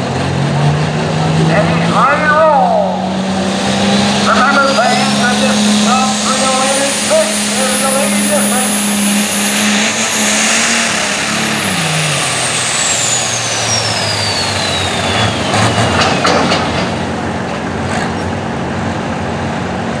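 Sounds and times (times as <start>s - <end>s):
diesel tractor engine at full power: 0.0s - 20.0s
high falling turbo whistle: 4.2s - 16.6s.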